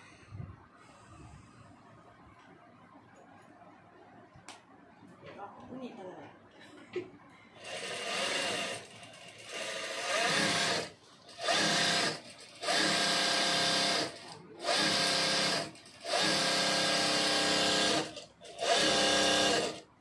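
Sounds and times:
sewing machine stitching: 7.6 - 19.8.

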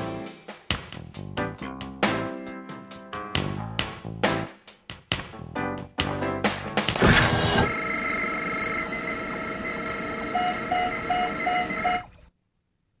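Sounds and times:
electronic drone of held tones: 7.0 - 12.2
quick electronic beeps: 9.7 - 12.1.

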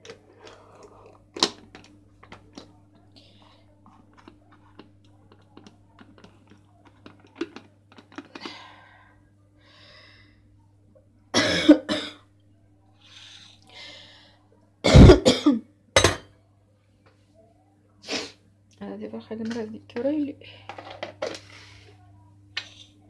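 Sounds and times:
low steady hum: 0.0 - 23.0
person coughing: 11.4 - 12.2, 14.8 - 16.2.

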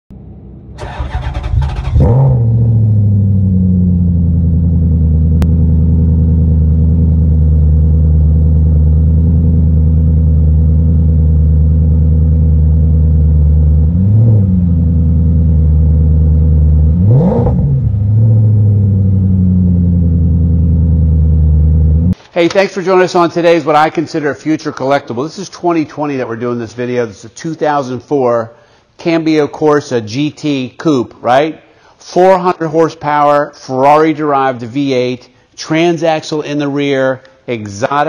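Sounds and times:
car engine starting and idling: 0.1 - 22.2
engine revving: 0.7 - 7.2, 13.6 - 22.2.

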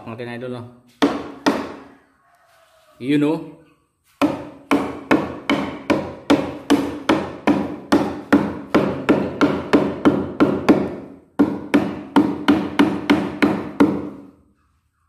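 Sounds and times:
hammer driving nails into plywood: 4.2 - 14.3.

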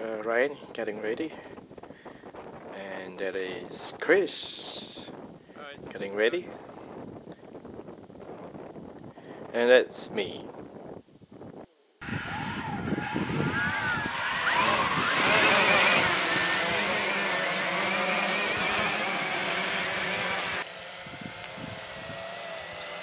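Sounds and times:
quadcopter motors whining: 12.0 - 23.0.

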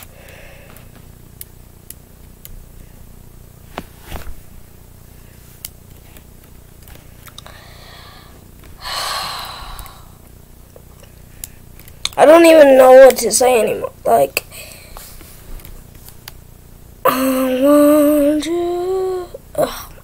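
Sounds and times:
person sighing: 7.4 - 10.2, 17.0 - 18.0.

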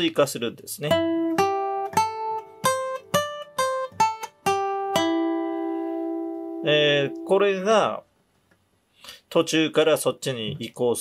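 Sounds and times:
acoustic guitar single notes: 0.9 - 7.4.

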